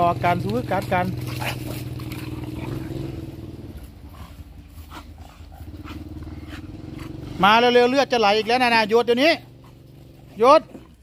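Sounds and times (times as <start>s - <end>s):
dogs scuffling: 0.3s - 3.0s
dogs growling: 1.0s - 11.0s.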